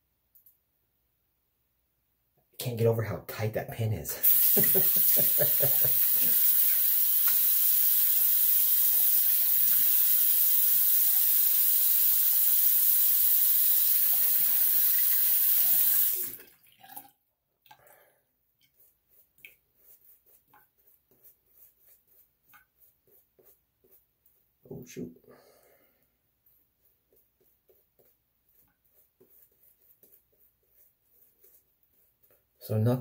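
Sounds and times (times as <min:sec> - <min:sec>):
shaving brush rubbing lather: 0:04.2 - 0:13.8, 0:18.6 - 0:25.0, 0:26.4 - 0:33.0
tap running into sink: 0:05.9 - 0:08.0.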